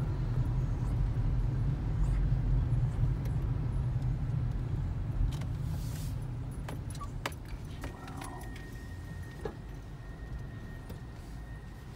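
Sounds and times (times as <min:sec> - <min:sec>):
car engine and road rumble: 0:00.0 - 0:11.9.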